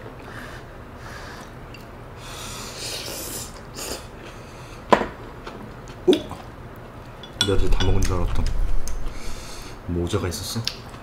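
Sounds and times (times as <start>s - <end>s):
person drawing noisy breath: 0.2s - 1.6s, 2.2s - 4.9s, 9.0s - 9.9s.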